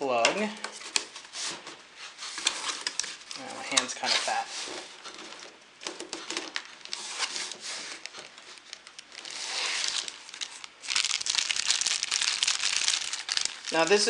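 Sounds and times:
plastic bag crinkling: 6.5s - 14.0s.

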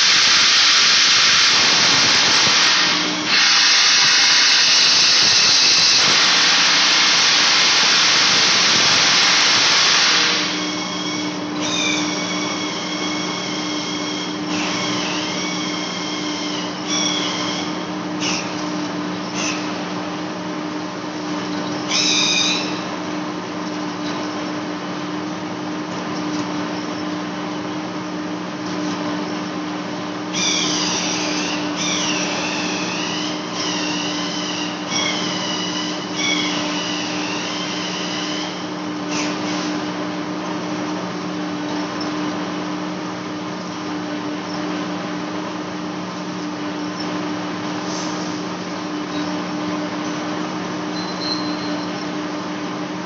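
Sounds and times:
cutting tool squealing: 0.0s - 19.8s, 21.6s - 22.9s, 30.3s - 39.8s, 50.8s - 52.3s
lathe machine hum: 0.0s - 53.0s.

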